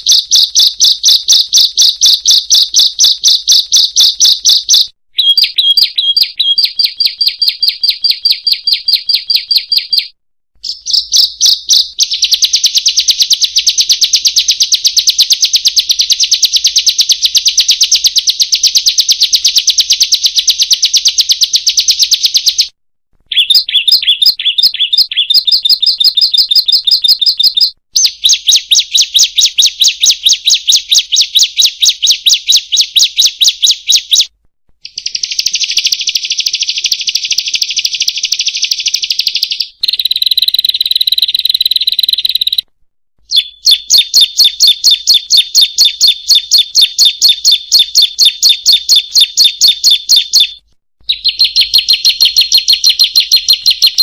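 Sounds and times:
whistled bird note: 0:00.0 - 0:09.7, 0:23.3 - 0:34.3, 0:43.3 - 0:46.6
bird song rapid high notes: 0:00.0 - 0:22.7, 0:23.3 - 0:42.6, 0:43.2 - 0:54.0
buzzy bird trill: 0:00.0 - 0:22.7, 0:23.3 - 0:42.6, 0:43.2 - 0:54.0.

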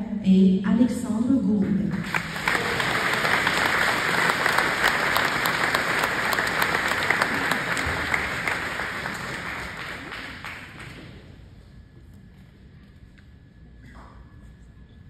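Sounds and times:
audience applauding: 0:01.9 - 0:11.3.

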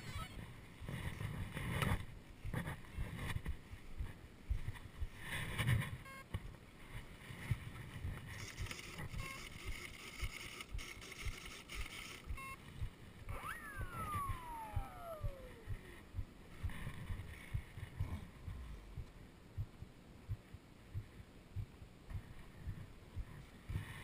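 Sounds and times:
heartbeat thumping: 0:00.4 - 0:24.0
electric motor whining: 0:13.3 - 0:15.9.

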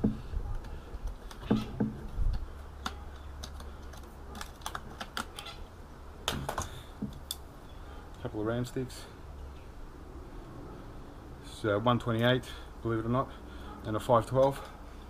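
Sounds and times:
sharp plastic clicks: 0:00.6 - 0:05.6.

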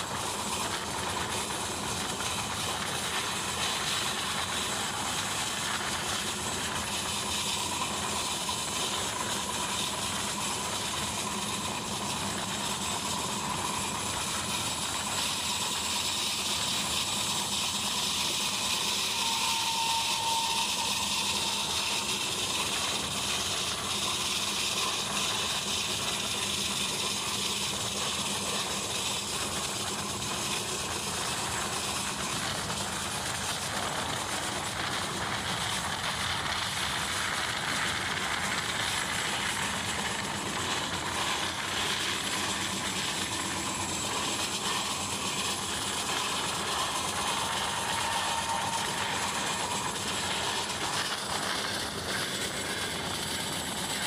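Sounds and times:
wheels on rails: 0:00.0 - 0:54.0.

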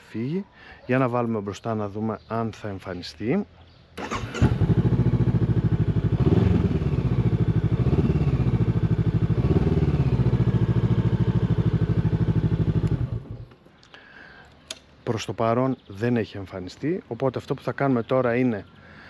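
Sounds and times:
motorcycle engine starting and idling: 0:04.0 - 0:13.6.

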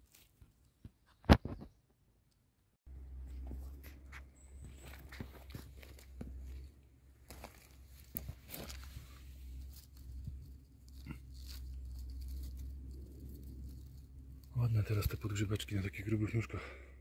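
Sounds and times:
mushroom pulled from litter: 0:04.8 - 0:16.4
dry twigs crunching and snapping: 0:04.9 - 0:15.9.

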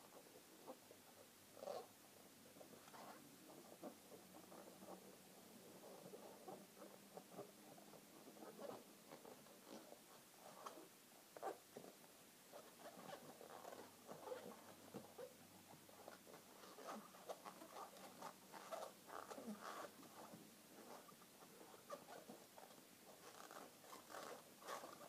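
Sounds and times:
balloons squeaking and rubbing: 0:02.7 - 0:03.8, 0:12.5 - 0:25.0.

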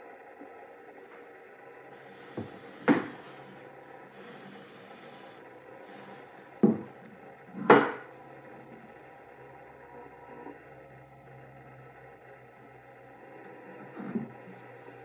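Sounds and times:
wood sliding on wood: 0:02.0 - 0:08.9, 0:13.8 - 0:15.0
wooden box knocking on table: 0:06.6 - 0:06.9.

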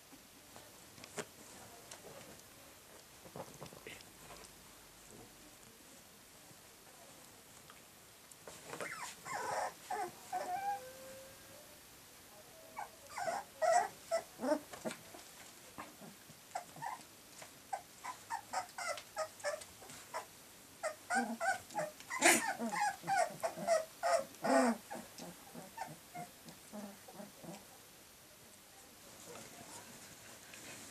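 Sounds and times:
puppies growling: 0:08.8 - 0:10.8, 0:12.8 - 0:15.0, 0:17.7 - 0:27.7
puppies whimpering: 0:08.8 - 0:10.9, 0:12.8 - 0:14.6, 0:17.7 - 0:26.3.

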